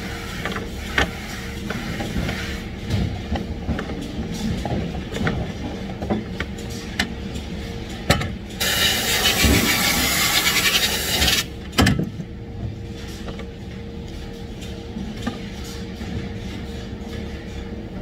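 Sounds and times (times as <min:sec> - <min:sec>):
machine hum: 0:02.2 - 0:18.0
spray gun hissing: 0:08.6 - 0:11.4.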